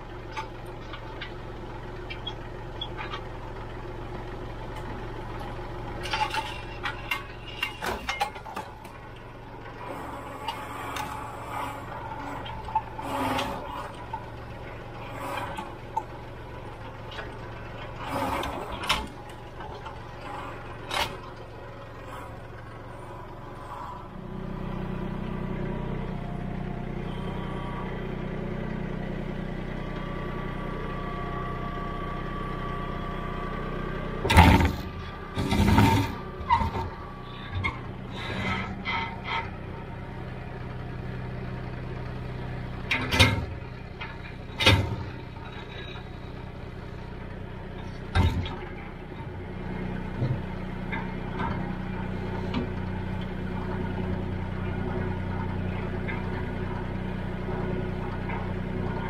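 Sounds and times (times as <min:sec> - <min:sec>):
tractor diesel engine running: 0:00.0 - 0:59.0
metal clanks and knocks: 0:06.0 - 0:09.0, 0:34.3 - 0:39.5.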